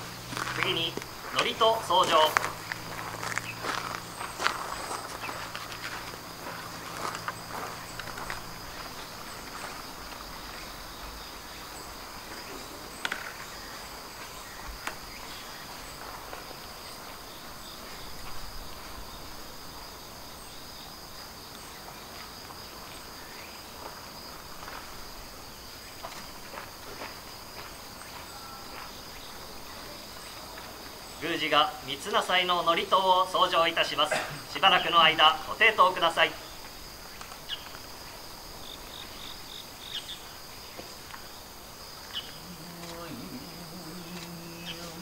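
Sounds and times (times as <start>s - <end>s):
insect chorus trilling: 0.0s - 45.0s.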